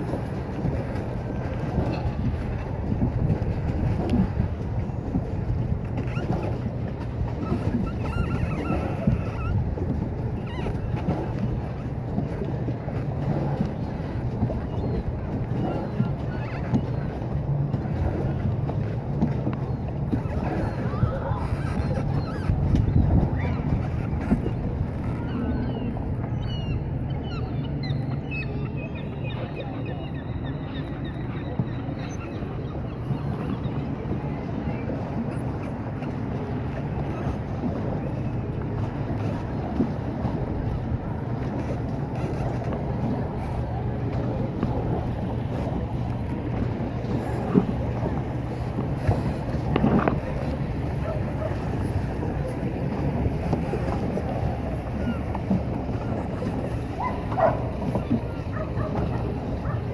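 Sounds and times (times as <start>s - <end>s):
wind on microphone: 0.0s - 27.8s
churning water rumble: 0.0s - 59.9s
wind buffeting microphone: 0.0s - 59.9s.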